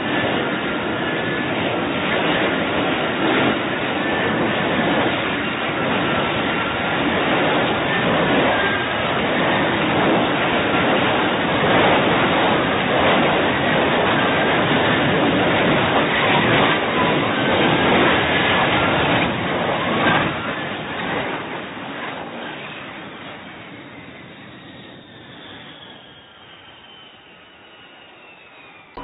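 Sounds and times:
jet engine hovering: 0.0s - 29.0s
faint high whine: 22.3s - 29.0s.

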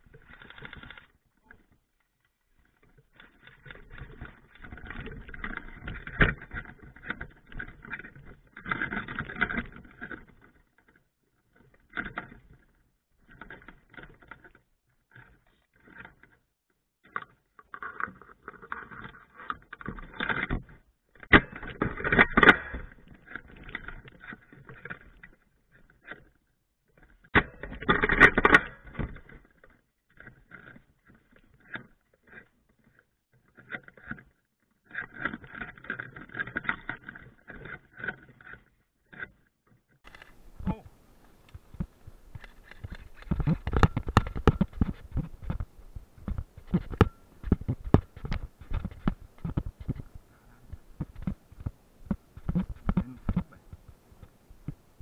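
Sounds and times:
scraping and rustling handling: 40.0s - 55.0s.

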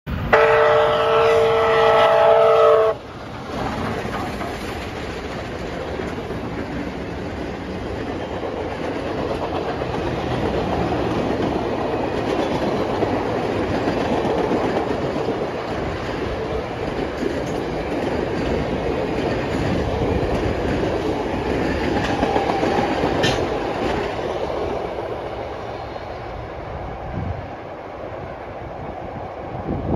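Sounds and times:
steam locomotive whistle: 0.2s - 3.0s
train cars clickety-clack: 0.4s - 26.6s.

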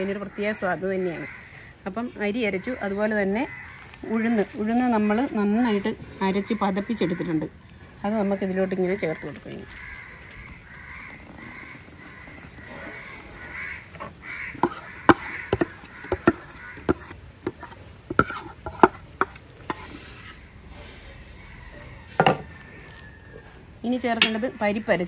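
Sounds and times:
crows cawing: 0.0s - 5.4s, 8.2s - 17.2s
utensil knocking on pot: 14.6s - 19.8s, 22.2s - 22.4s, 24.2s - 24.6s.

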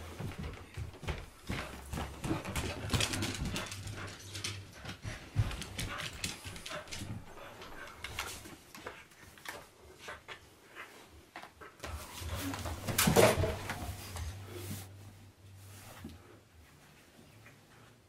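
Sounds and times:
paws clicking on hardwood floor: 0.0s - 14.4s.

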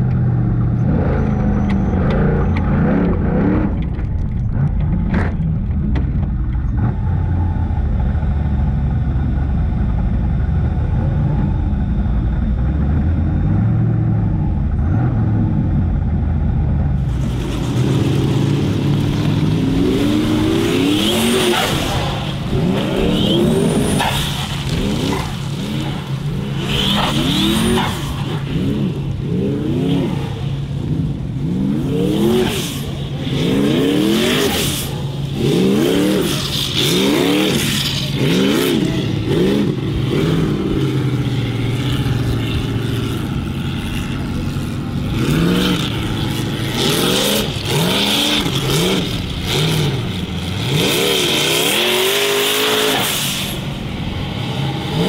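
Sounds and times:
race car engine revving: 16.9s - 55.0s.

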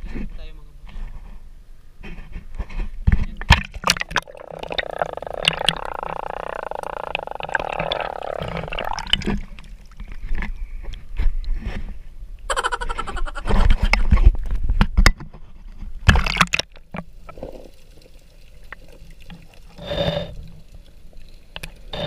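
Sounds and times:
water splashing: 3.4s - 10.5s, 16.0s - 22.0s.

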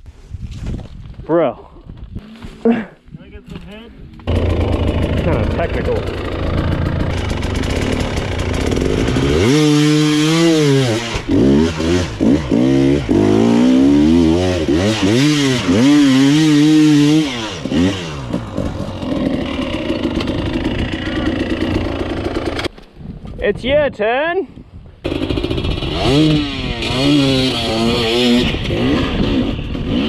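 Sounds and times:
dirt bike engine revving: 4.2s - 22.7s, 25.0s - 30.0s.

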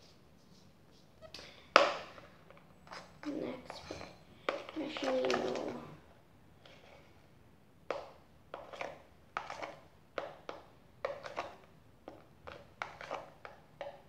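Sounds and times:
stick stirring slime in bowl: 2.0s - 6.0s, 7.9s - 14.0s.

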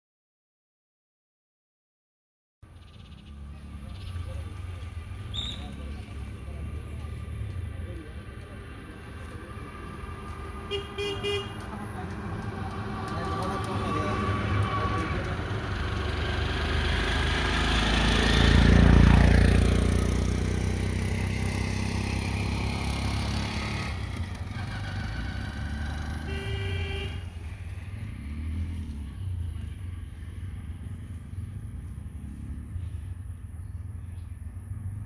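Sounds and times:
auto-rickshaw passing: 2.6s - 35.0s
vehicle horn toot: 10.7s - 11.7s, 26.1s - 27.4s.

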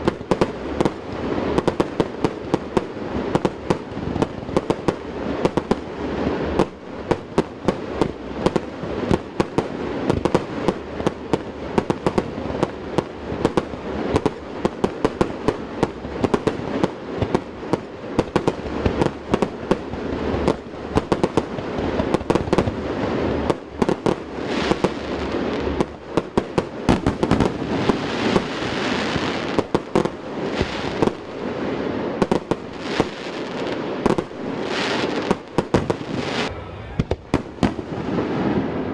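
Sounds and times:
fireworks hissing: 0.0s - 38.6s
fireworks bangs: 0.0s - 38.9s
constant rumble: 35.8s - 38.0s.

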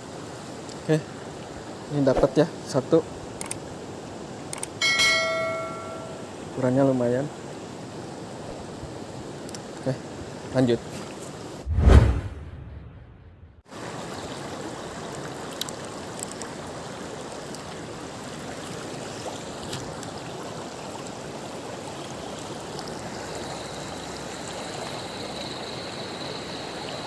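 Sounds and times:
river water rushing: 0.0s - 11.6s
faint high steady whine: 4.8s - 7.1s.

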